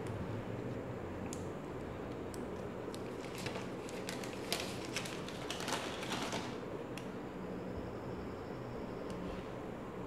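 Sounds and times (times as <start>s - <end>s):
low room hum: 0.0s - 10.0s
packaging crackling and clicking: 3.0s - 6.6s.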